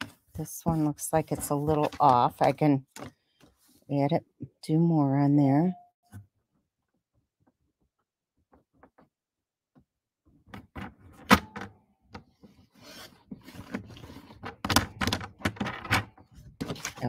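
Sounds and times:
cardstock rubbing and sliding: 0.7s - 2.5s.

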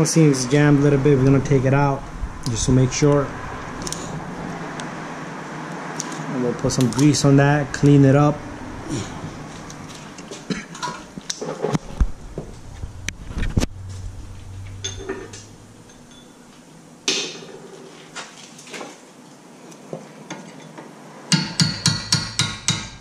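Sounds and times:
metal tools clinking: 14.8s - 16.4s.

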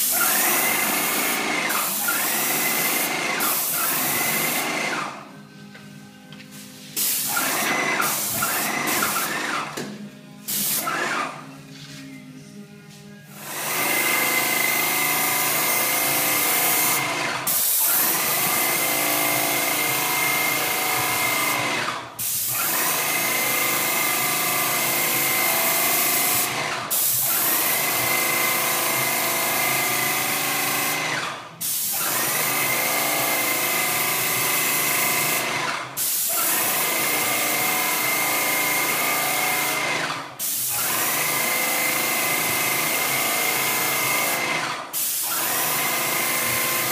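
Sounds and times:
paint spray gun hissing: 0.0s - 4.6s, 6.9s - 9.4s, 10.5s - 11.0s, 15.5s - 18.9s, 36.0s - 37.6s, 40.4s - 41.2s, 43.8s - 46.9s.

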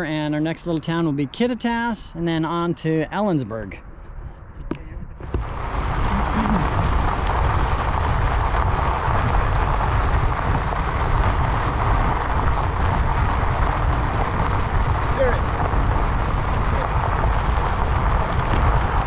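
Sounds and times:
wind buffeting microphone: 4.1s - 19.0s
bicycle tyres on dirt trail: 5.2s - 19.0s.

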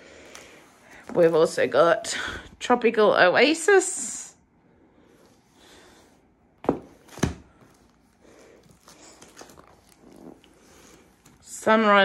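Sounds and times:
cardboard boxes set on table: 0.2s - 2.1s, 5.1s - 12.0s.

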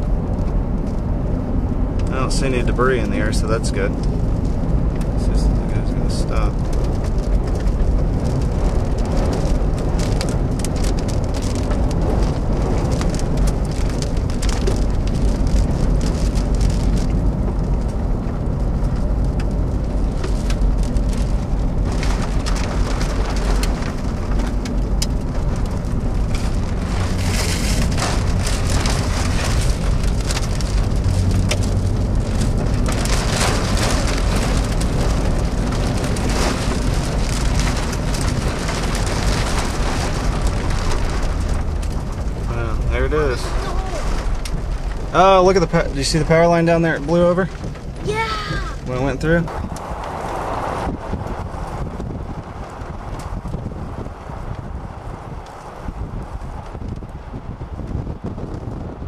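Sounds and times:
car driving rumble: 0.0s - 59.0s
rain ticking on car windshield: 0.0s - 59.0s
wind: 0.0s - 59.0s.

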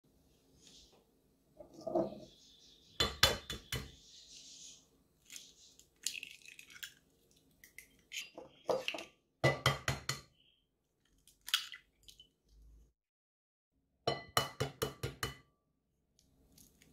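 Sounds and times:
eggs cracking against glass bowl: 6.0s - 9.1s.

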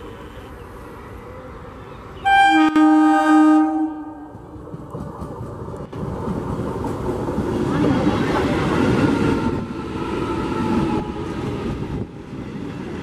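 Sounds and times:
train rumble: 0.0s - 13.0s
train horn blast: 2.2s - 4.4s.

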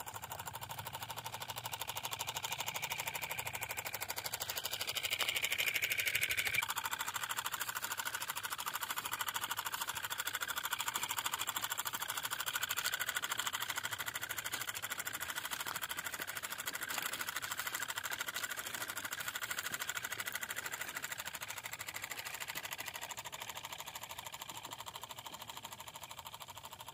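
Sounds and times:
small motor mechanical chatter: 0.0s - 26.9s.

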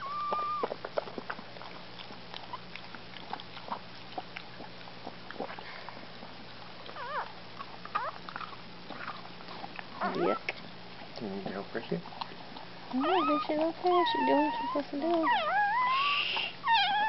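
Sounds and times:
puppy squealing: 0.0s - 0.8s, 7.0s - 7.3s, 7.9s - 8.2s, 10.0s - 10.6s, 12.9s - 17.0s
dog licking puppy: 0.0s - 17.0s.

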